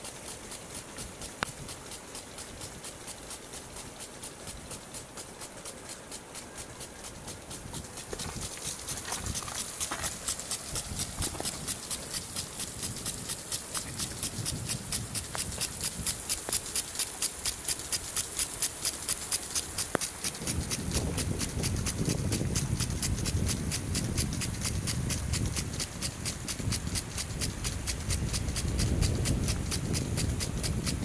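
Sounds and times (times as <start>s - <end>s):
footsteps crunching in snow: 8.1s - 11.5s.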